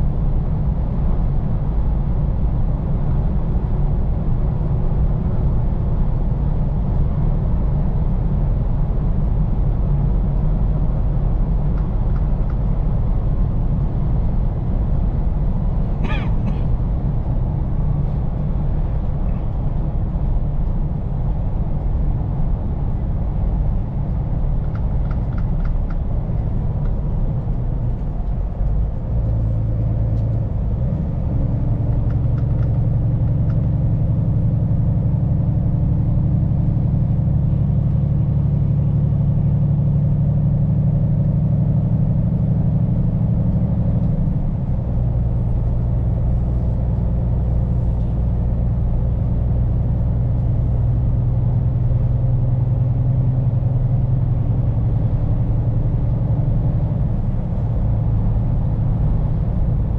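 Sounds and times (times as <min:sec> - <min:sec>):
tyre and road noise: 0:10.8 - 0:59.9
truck diesel engine pulling: 0:26.1 - 0:59.9.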